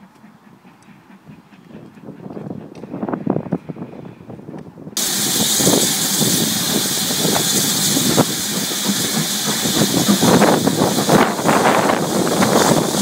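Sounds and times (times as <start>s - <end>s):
steam locomotive hissing: 5.0s - 13.0s.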